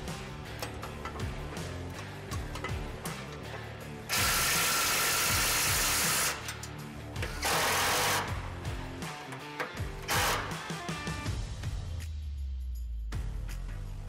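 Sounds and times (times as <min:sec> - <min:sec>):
background music: 0:00.0 - 0:14.0
power driver tightening bolts: 0:00.4 - 0:08.3, 0:09.3 - 0:10.6.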